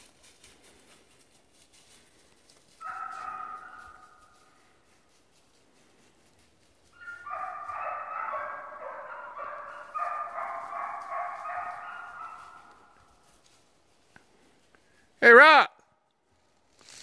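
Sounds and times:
dog howling: 0:02.8 - 0:04.1, 0:07.0 - 0:12.8.

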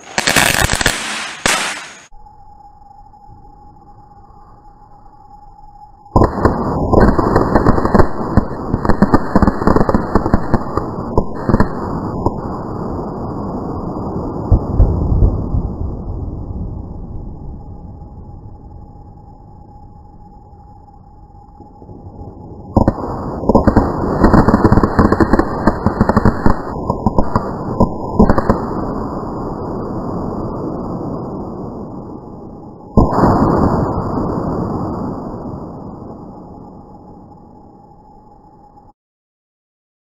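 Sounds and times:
firecrackers banging: 0:00.0 - 0:02.1, 0:06.2 - 0:12.6, 0:22.8 - 0:29.2.

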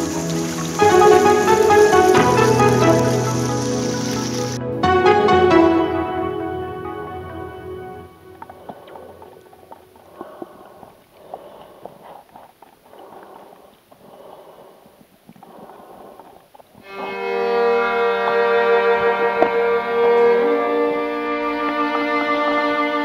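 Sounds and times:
bowed string piece with violin: 0:00.0 - 0:09.4, 0:16.8 - 0:23.0
soft swelling music: 0:00.0 - 0:09.9, 0:16.9 - 0:23.0.

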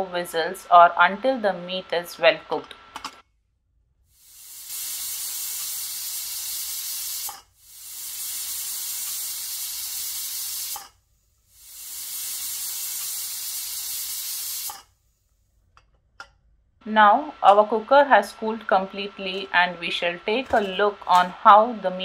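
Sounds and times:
pressure cooker whistling: 0:04.2 - 0:14.9.

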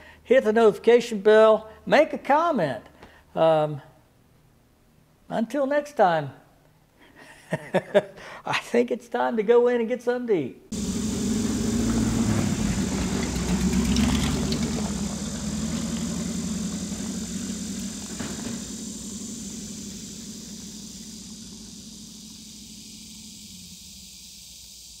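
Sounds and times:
vehicle engine driving on gravel: 0:10.7 - 0:24.4.

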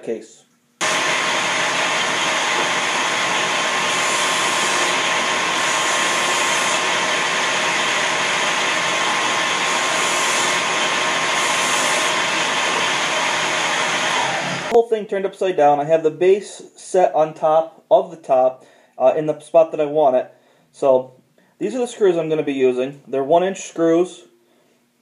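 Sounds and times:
disc sander running: 0:00.8 - 0:14.8.

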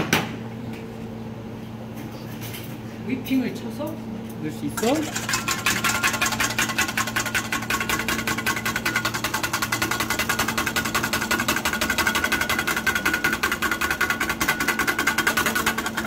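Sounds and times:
whisk rattling in metal bowl: 0:04.7 - 0:16.0.

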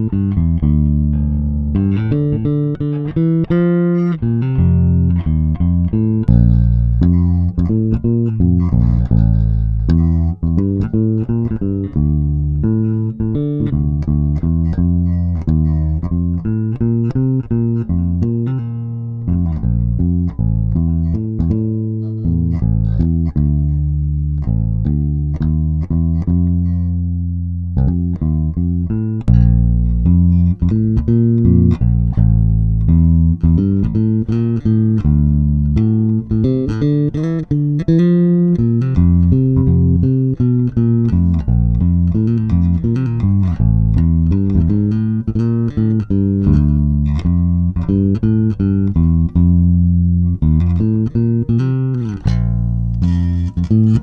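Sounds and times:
electric bass plucked notes: 0:00.0 - 0:54.0.

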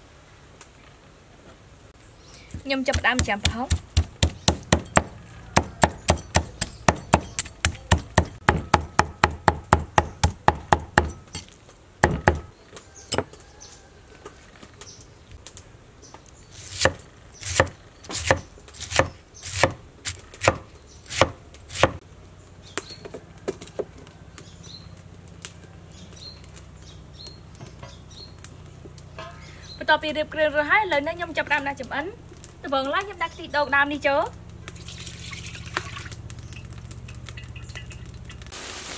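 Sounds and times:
cleaver chopping on wooden board: 0:02.5 - 0:11.3, 0:12.0 - 0:12.5, 0:16.6 - 0:22.0
knife cutting pineapple: 0:16.6 - 0:22.0.

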